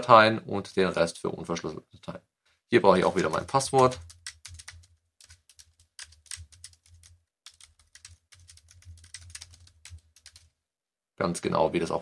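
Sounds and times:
computer keyboard keystrokes: 3.1s - 10.5s.

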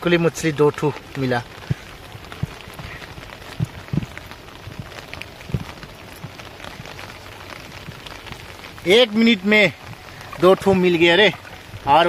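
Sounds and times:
rain hiss: 0.0s - 12.0s
dull low thumps: 1.0s - 8.8s.

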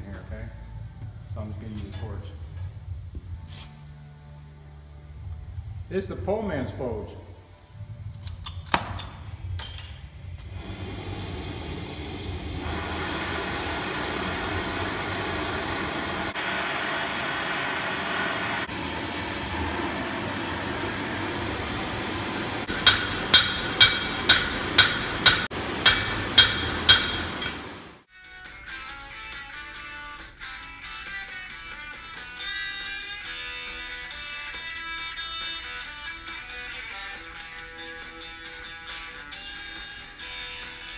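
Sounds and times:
gas torch flame hissing: 10.4s - 27.9s
hammer ringing on anvil: 22.7s - 28.0s.

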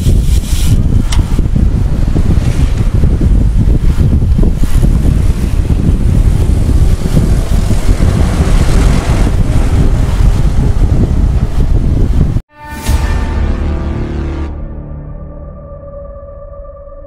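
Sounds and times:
wind buffeting microphone: 0.0s - 12.5s.

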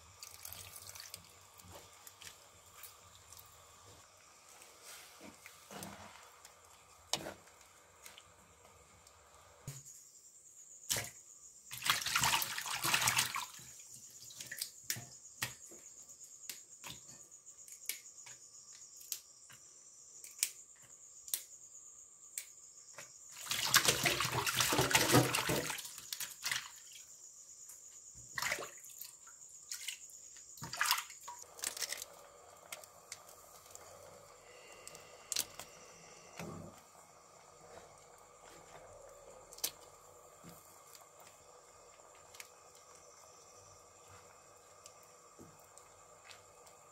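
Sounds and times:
water dripping: 0.0s - 4.3s, 11.7s - 15.6s, 28.4s - 33.9s
water splashing in metal basin: 0.2s - 1.4s, 11.7s - 14.7s, 23.4s - 27.0s, 28.4s - 32.0s.

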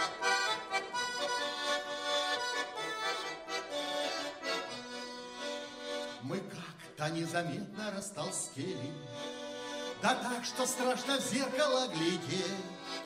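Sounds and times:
button accordion folk melody: 0.0s - 13.0s.

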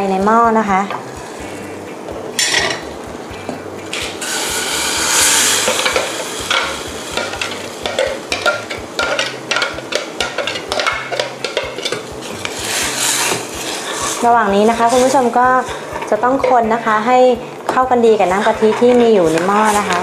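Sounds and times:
metal ladle clicking and scraping: 5.1s - 16.8s.

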